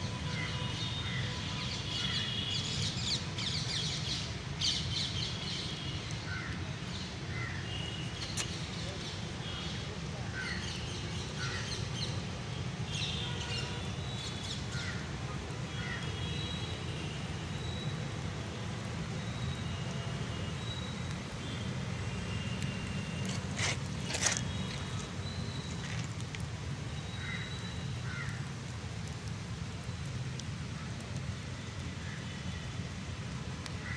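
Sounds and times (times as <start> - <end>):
birds chirping: 22.8 - 26.3.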